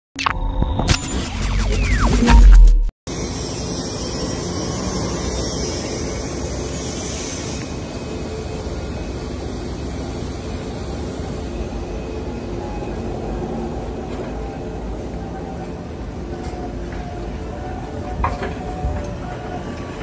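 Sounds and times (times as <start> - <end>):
steady mechanical noise: 0.2 - 20.0.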